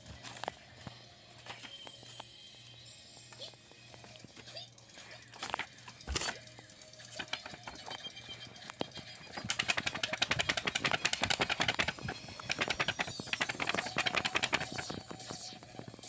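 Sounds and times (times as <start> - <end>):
paper rustling and flapping: 0.0 - 2.2, 5.3 - 6.4, 7.1 - 8.0, 8.6 - 15.5.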